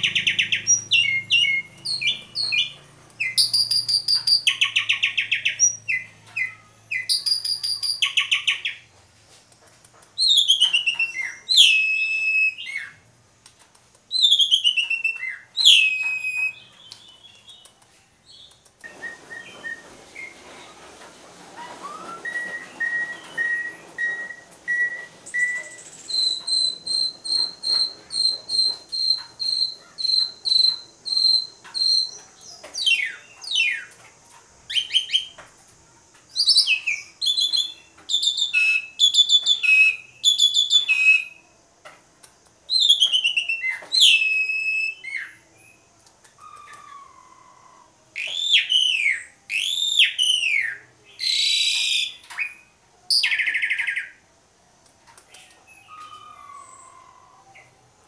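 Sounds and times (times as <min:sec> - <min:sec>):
starling singing: 0:00.0 - 0:08.9, 0:21.6 - 0:33.9, 0:36.4 - 0:41.4, 0:42.7 - 0:54.2, 0:55.3 - 0:57.8.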